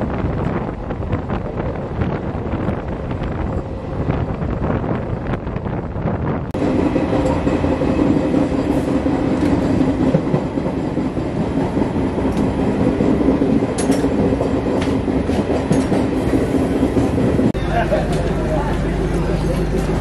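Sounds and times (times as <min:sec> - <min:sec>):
train wheels rumbling on rails: 0:00.0 - 0:20.0
wheels clacking over rail joints: 0:07.0 - 0:20.0.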